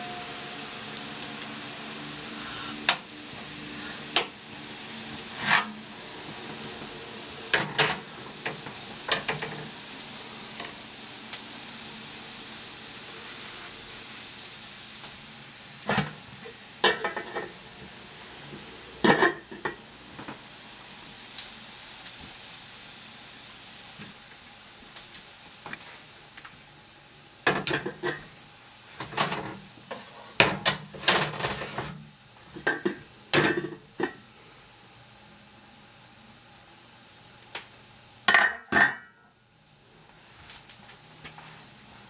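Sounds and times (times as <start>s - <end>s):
bacon and onion sizzling in pan: 0.0s - 42.0s
pot and lid clattering on hob: 7.5s - 9.7s, 15.8s - 17.6s, 19.0s - 19.8s, 27.5s - 28.3s, 32.6s - 34.2s, 38.3s - 39.2s.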